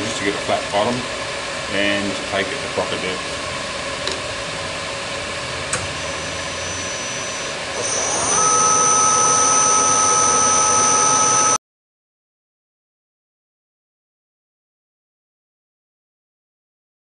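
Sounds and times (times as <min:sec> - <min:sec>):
milling machine spindle whine: 0:00.0 - 0:11.6.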